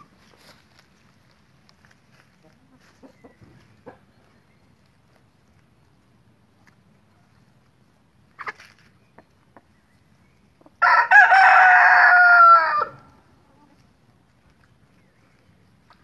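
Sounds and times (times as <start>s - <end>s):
rooster crowing: 10.8s - 13.0s.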